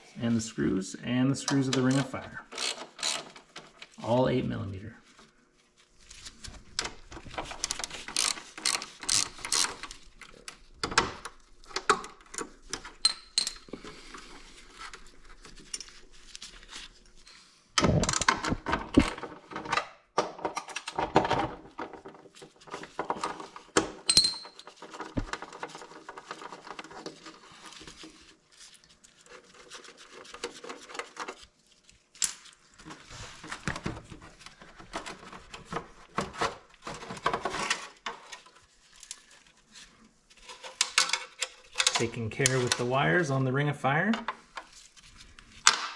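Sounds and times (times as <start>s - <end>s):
ratchet wrench clicking: 2.6s - 3.2s, 8.1s - 9.7s.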